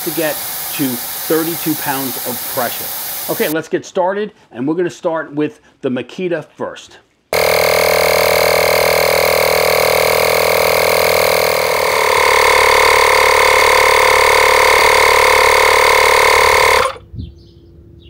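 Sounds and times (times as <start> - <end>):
tire inflator compressor running: 0.0 - 3.6, 7.4 - 17.0.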